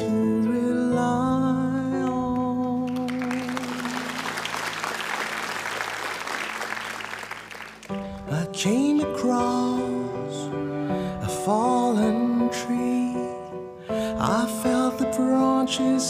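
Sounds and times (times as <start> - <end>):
slow music with held notes: 0.0 - 4.9, 7.8 - 16.0
audience applause: 2.9 - 8.3.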